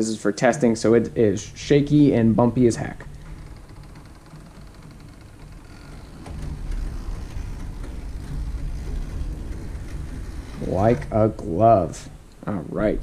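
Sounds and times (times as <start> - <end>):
model train rumbling on track: 0.0 - 13.0.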